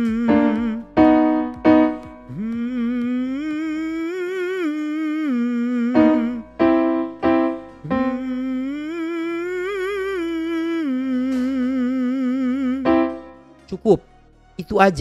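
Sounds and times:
man humming with vibrato: 0:00.0 - 0:01.4, 0:02.3 - 0:13.3
piano chords: 0:00.0 - 0:14.4.

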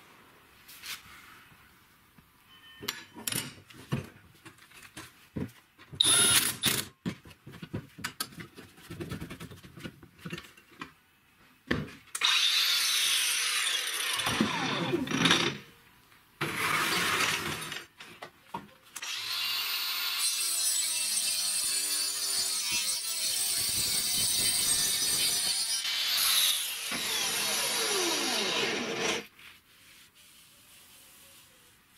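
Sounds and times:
saw blade cutting chipboard: 0:19.0 - 0:29.3.

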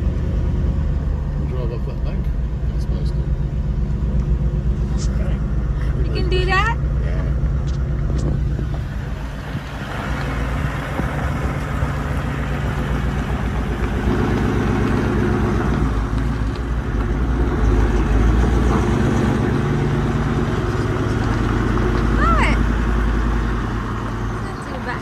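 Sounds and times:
tyre and road noise: 0:00.0 - 0:25.0
vehicle engine running: 0:00.0 - 0:25.0.

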